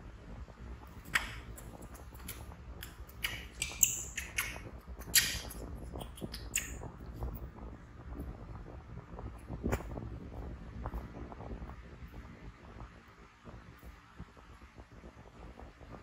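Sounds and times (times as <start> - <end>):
baby monkey squeaking: 1.1 - 6.8.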